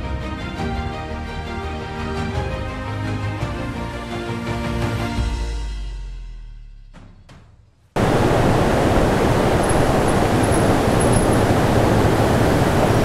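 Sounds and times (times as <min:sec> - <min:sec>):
background music: 0:00.0 - 0:07.6
waterfall rushing: 0:08.0 - 0:13.0.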